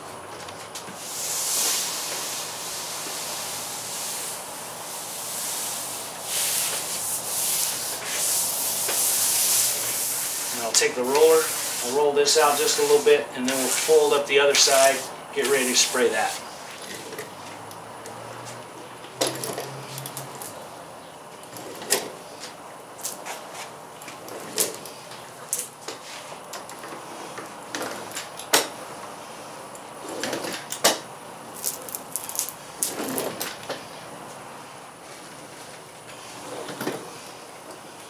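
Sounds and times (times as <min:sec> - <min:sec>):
hand roller rolling over sheet: 0:00.0 - 0:17.6, 0:21.4 - 0:31.0, 0:31.6 - 0:34.4, 0:35.0 - 0:38.0
steady hiss: 0:00.7 - 0:17.1.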